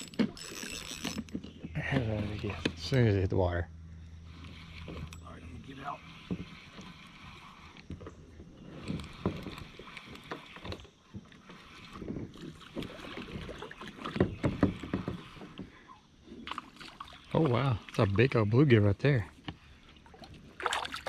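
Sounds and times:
fishing reel clicking: 0:00.0 - 0:01.3.

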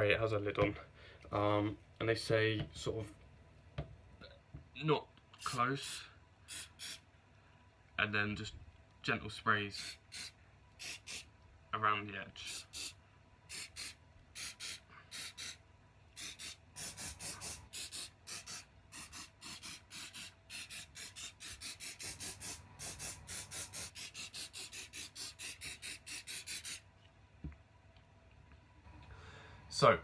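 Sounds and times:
aerosol spray hissing in bursts: 0:05.4 - 0:07.0, 0:09.8 - 0:11.3, 0:12.4 - 0:15.6, 0:16.2 - 0:26.8.

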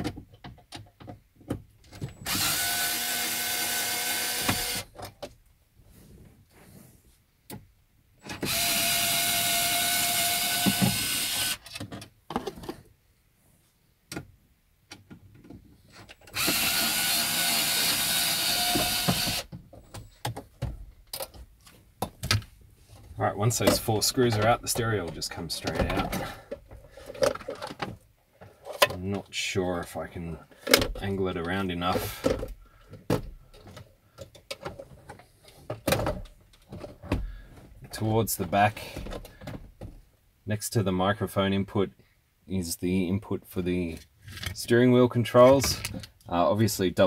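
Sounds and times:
handling clicks and knocks: 0:00.0 - 0:02.2, 0:19.5 - 0:29.4
electric screwdriver whine: 0:02.2 - 0:04.9, 0:08.4 - 0:11.6, 0:16.3 - 0:19.5.

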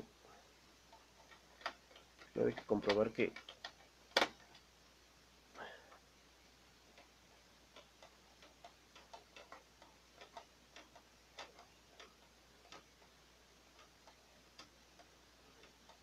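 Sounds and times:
small plastic clicks: 0:00.9 - 0:04.7, 0:06.9 - 0:16.0.

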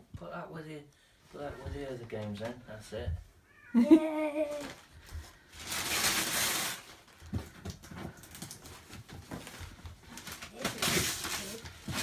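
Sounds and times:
wrapping paper rustling: 0:04.5 - 0:12.0.

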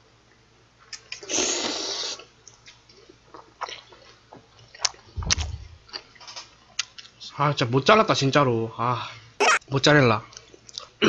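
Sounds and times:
low thump: 0:05.2 - 0:05.8.

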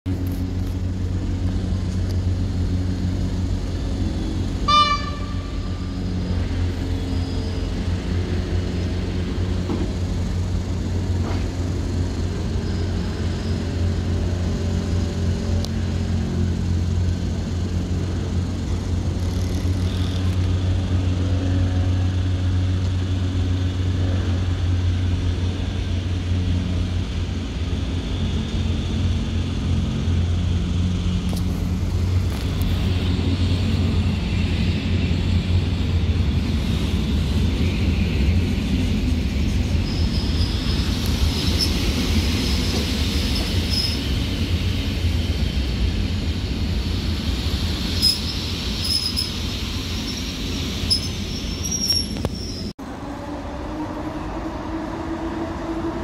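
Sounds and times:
train horn toot: 0:04.6 - 0:06.0.

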